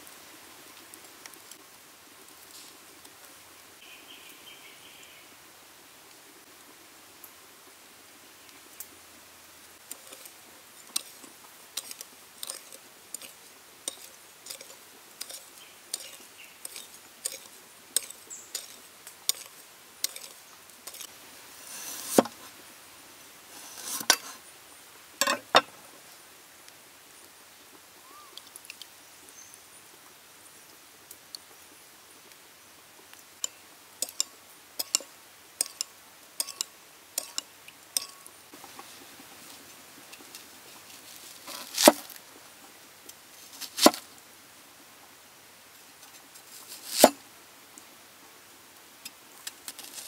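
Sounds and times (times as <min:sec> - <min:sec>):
spoon scraping bowl: 0:09.9 - 0:10.3, 0:11.8 - 0:22.5, 0:23.5 - 0:24.4, 0:36.4 - 0:37.4
spoon clinking against bowl: 0:36.4 - 0:37.4.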